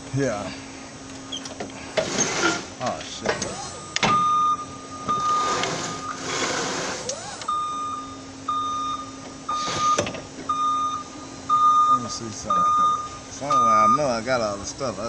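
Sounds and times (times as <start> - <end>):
low steady hum: 0.0 - 15.0
forklift reversing alarm beeps: 3.4 - 14.2.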